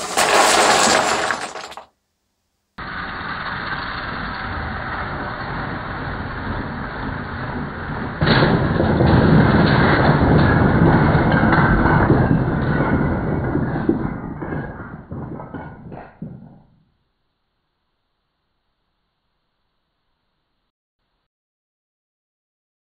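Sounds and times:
toy train rumbling on track: 0.0s - 1.9s, 2.8s - 16.2s
wooden blocks crashing down: 0.0s - 2.0s, 6.3s - 16.7s.

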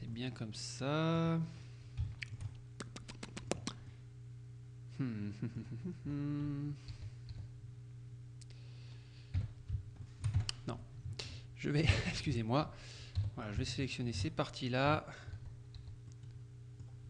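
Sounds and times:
low electrical hum: 0.0s - 17.0s
man humming: 4.9s - 7.0s.

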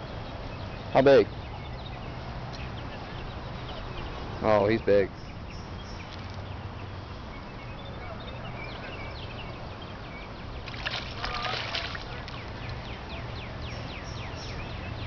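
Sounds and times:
fish splashing and thrashing: 10.6s - 12.8s.

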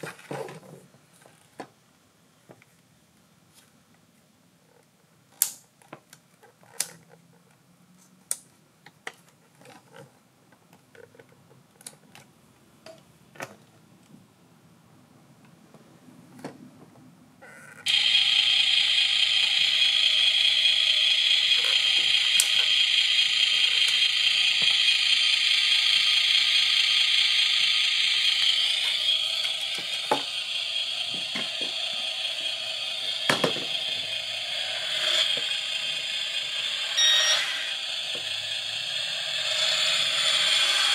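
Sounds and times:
steady motor sound of model: 17.8s - 40.9s.

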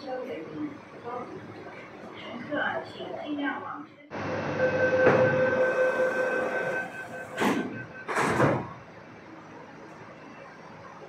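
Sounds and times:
two-pitch door warning tone: 4.2s - 8.3s
sliding doors shutting: 5.0s - 8.8s.

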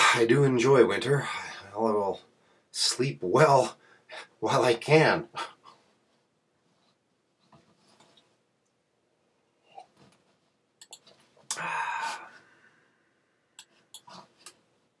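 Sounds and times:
man sighing: 11.5s - 12.8s.

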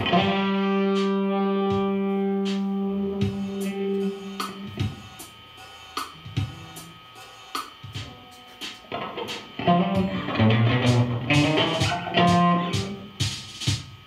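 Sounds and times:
electric guitar: 0.0s - 5.0s, 7.9s - 13.4s.

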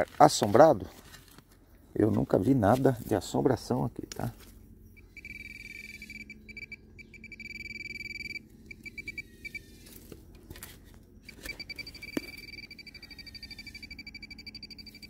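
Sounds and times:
metal detector pulsing tone: 4.9s - 9.9s, 11.2s - 15.0s.

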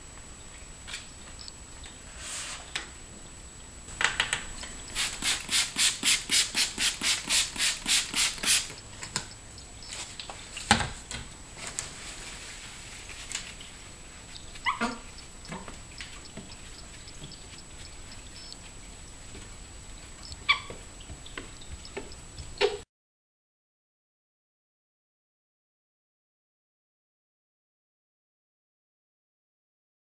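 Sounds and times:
spray bottle hissing sprays: 4.8s - 8.8s.

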